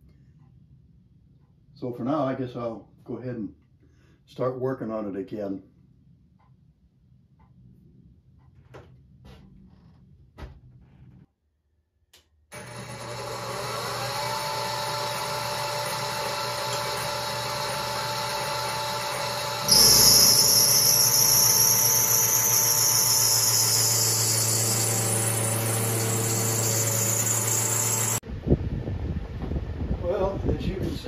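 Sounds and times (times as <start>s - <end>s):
milling machine motor whining: 12.6s - 28.2s
cutter hissing on metal: 14.4s - 28.2s.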